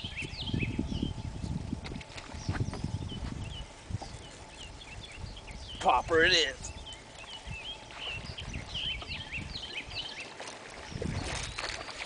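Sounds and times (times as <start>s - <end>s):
low rumble: 0.0s - 5.8s
songbirds singing: 0.0s - 12.0s.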